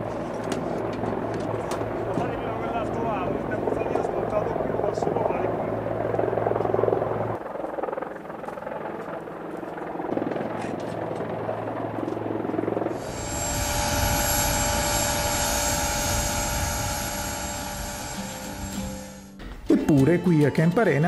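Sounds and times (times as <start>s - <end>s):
helicopter turbine whine: 0.0s - 19.4s.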